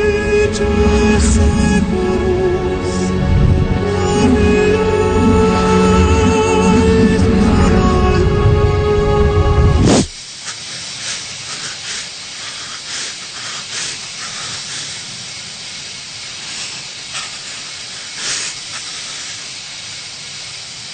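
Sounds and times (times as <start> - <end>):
steam hissing: 0.0 - 8.0, 9.8 - 20.9
faint crackles: 9.9 - 20.7.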